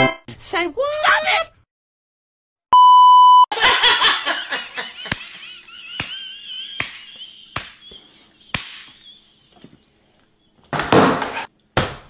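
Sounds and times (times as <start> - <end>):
test tone beep: 2.7 - 3.5
sharp slaps: 5.0 - 9.1.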